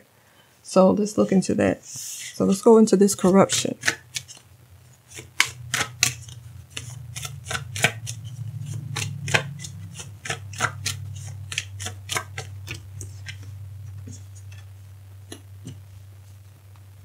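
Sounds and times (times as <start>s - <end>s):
low steady hum: 0.0s - 17.0s
cards being shuffled: 3.2s - 4.4s, 5.0s - 14.7s.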